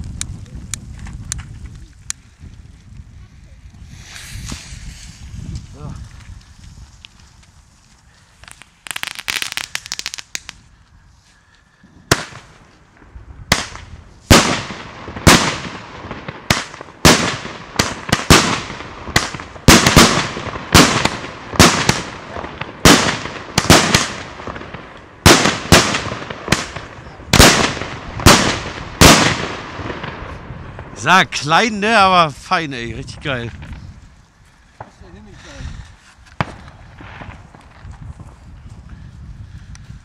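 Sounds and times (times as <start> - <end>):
fast firework crackling: 3.6 - 10.7, 12.1 - 34.0, 34.7 - 38.6
sharp echoing firework shots: 3.8 - 6.0, 8.4 - 10.6, 12.1 - 32.3, 36.4 - 38.4.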